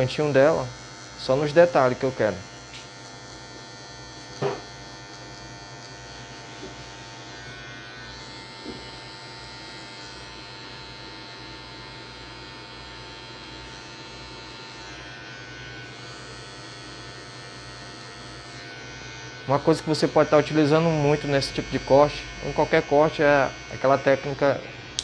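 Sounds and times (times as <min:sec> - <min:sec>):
electric hair clipper buzzing: 0:00.0 - 0:25.0.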